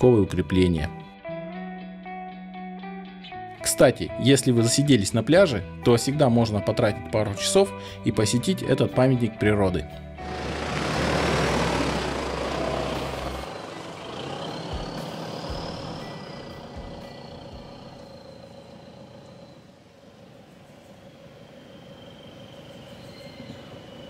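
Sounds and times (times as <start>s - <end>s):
vehicle driving past through grass: 10.2s - 24.0s.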